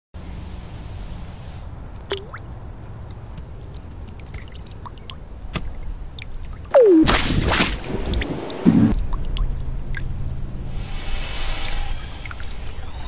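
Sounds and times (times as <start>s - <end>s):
low rumble of water: 1.8s - 13.0s
water drops dripping: 2.0s - 7.0s, 8.9s - 12.9s
falling swoosh: 10.7s - 13.0s.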